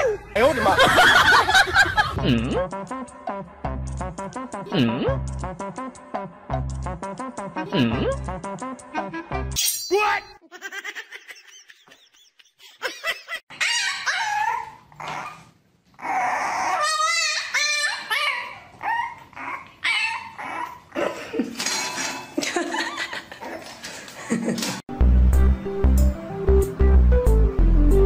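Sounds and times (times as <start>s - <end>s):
puppy barking and whining: 13.5s - 21.0s.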